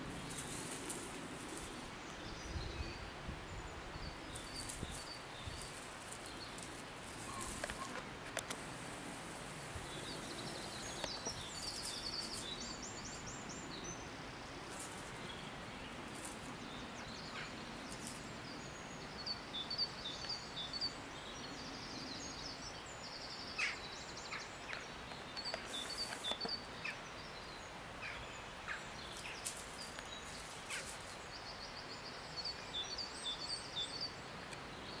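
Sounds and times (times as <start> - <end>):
songbirds trilling: 0.0 - 35.0
steady outdoor hiss: 0.0 - 35.0
short clicks and rustles: 5.6 - 8.8.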